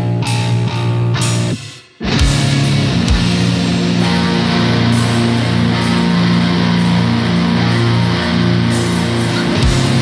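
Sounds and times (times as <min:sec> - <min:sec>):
heavy guitar and bass: 0:00.0 - 0:10.0.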